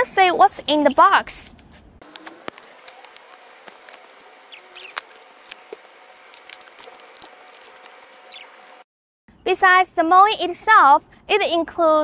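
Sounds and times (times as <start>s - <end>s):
cardboard box being opened: 2.1s - 8.5s.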